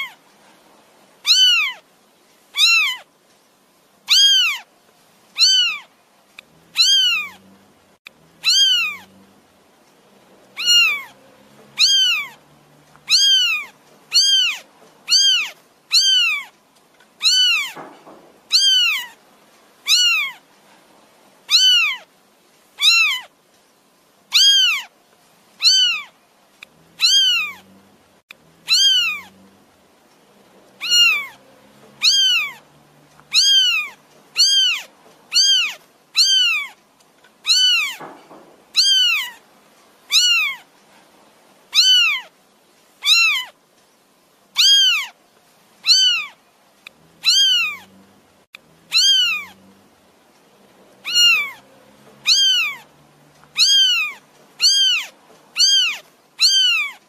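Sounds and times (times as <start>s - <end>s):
kitten mewing: 1.2s - 1.8s, 2.6s - 3.0s, 4.1s - 4.6s, 5.4s - 5.9s, 6.7s - 7.4s, 8.4s - 9.1s, 10.6s - 11.2s, 11.8s - 12.4s, 13.1s - 16.5s, 17.2s - 19.2s, 19.9s - 20.4s, 21.5s - 22.1s, 22.8s - 23.3s, 24.3s - 24.9s, 25.6s - 26.1s, 27.0s - 27.7s, 28.6s - 29.4s, 30.8s - 31.4s, 32.0s - 32.6s, 33.3s - 36.8s, 37.4s - 39.4s, 40.1s - 40.7s, 41.7s - 42.3s, 43.0s - 43.6s, 44.6s - 45.2s, 45.8s - 46.4s, 47.2s - 47.9s, 48.9s - 49.6s, 51.0s - 51.6s, 52.2s - 52.9s, 53.6s - 57.0s.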